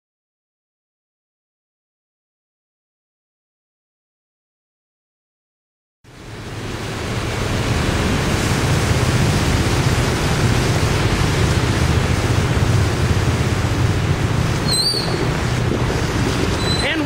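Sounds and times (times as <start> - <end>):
floodwater rushing: 6.1 - 17.0.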